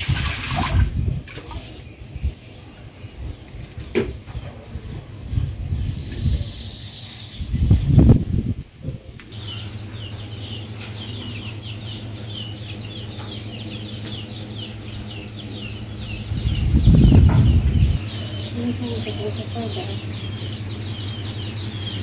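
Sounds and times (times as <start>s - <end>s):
small birds chirping: 0.2s - 22.0s
low rumble bursts: 4.7s - 22.0s.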